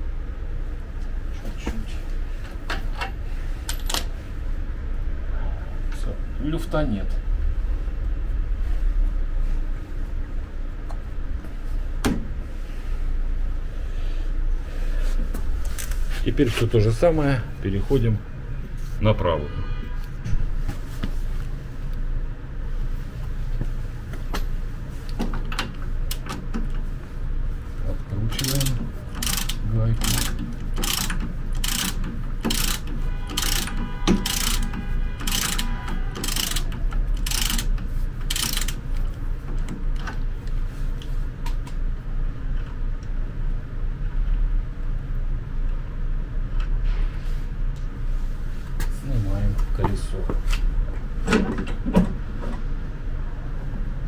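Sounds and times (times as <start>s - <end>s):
steady low hum: 0.0s - 54.0s
ratchet wrench clicking: 28.3s - 39.0s.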